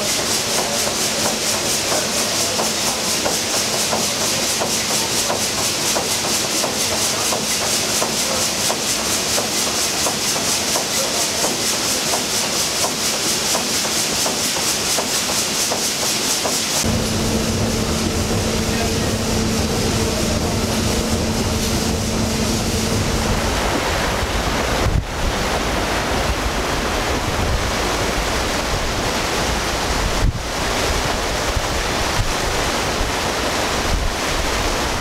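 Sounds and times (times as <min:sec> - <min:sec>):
steam engine clattering: 0:00.0 - 0:24.8
steady high steam hiss: 0:00.0 - 0:35.0.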